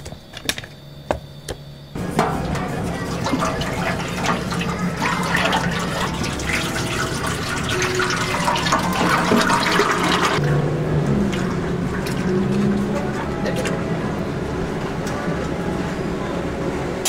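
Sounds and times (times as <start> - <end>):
oil pouring into a fryer: 2.0 - 10.4.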